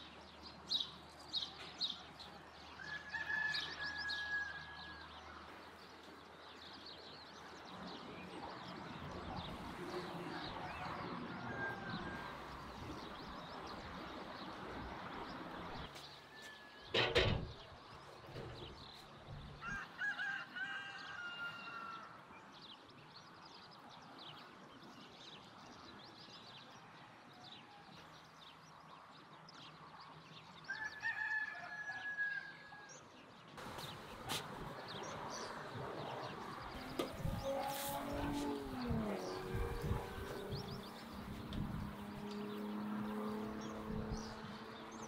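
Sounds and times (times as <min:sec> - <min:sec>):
rooster crowing: 0:02.8 - 0:05.1, 0:10.2 - 0:12.7, 0:19.6 - 0:22.2, 0:30.7 - 0:32.9.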